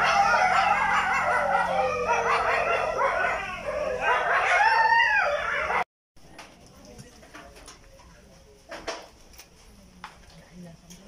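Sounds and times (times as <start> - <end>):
dogs whining and howling: 0.0 - 5.9.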